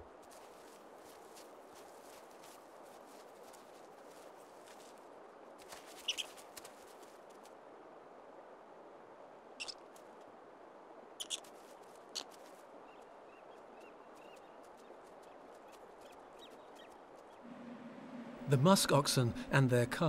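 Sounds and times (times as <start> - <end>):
short sharp squeaks and snaps: 11.2 - 11.5.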